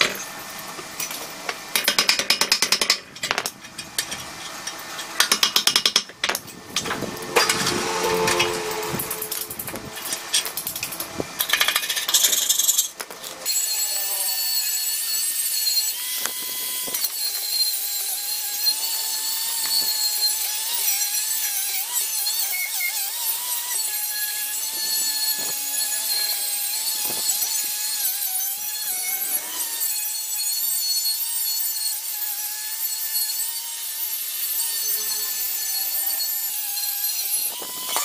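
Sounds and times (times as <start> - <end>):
angle grinder sanding metal: 3.6 - 38.0.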